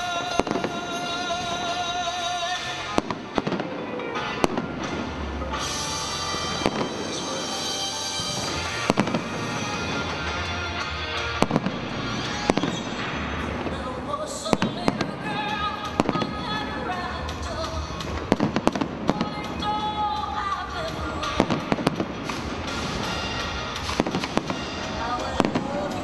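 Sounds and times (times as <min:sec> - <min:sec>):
firework shells bursting: 0:00.0 - 0:26.0
music: 0:00.0 - 0:26.0.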